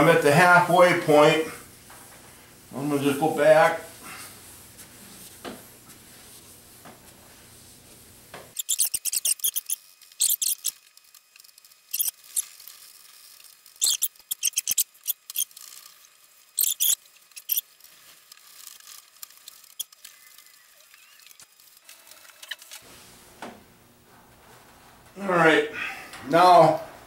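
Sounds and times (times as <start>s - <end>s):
cloth squeaking on waxed surface: 8.5s - 10.8s, 11.8s - 22.9s.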